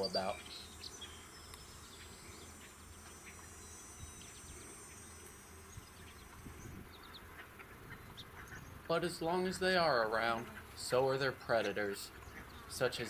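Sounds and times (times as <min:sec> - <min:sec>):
high-pitched insect drone: 0:00.0 - 0:07.2
bumblebee humming: 0:00.0 - 0:13.0.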